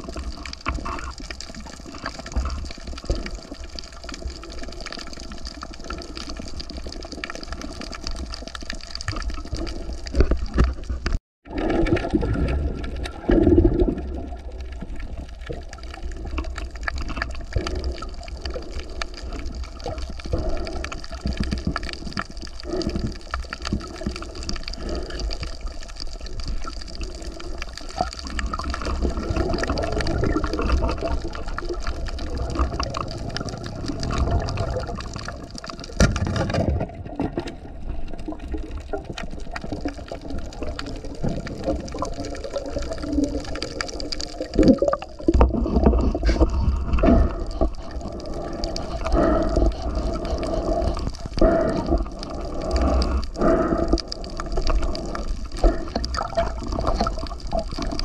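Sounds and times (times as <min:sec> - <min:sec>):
moving water: 0:00.0 - 0:58.0.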